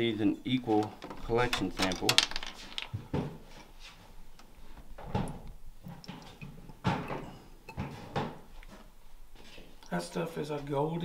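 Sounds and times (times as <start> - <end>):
plastic tubes knocking and clicking: 0.7 - 3.4.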